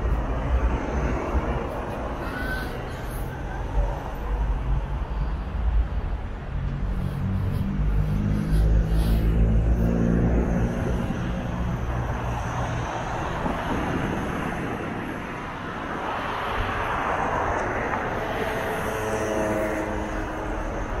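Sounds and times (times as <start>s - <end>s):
low engine hum: 0.0s - 15.4s
city street noise: 0.0s - 21.0s
passing vehicle: 0.0s - 21.0s.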